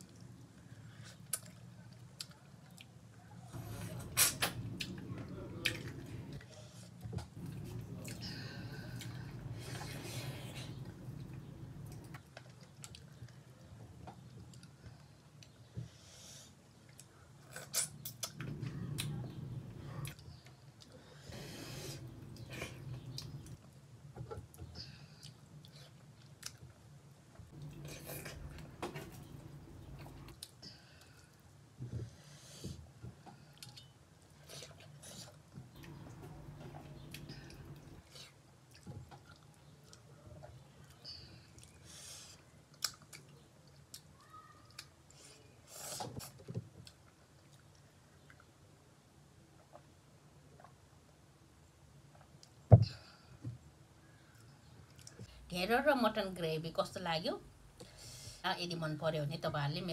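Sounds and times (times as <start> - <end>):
chewing food: 4.7 - 15.6, 22.0 - 23.7, 24.3 - 31.4, 33.0 - 42.0, 42.6 - 45.3, 46.0 - 48.8
eating sounds: 33.4 - 48.6.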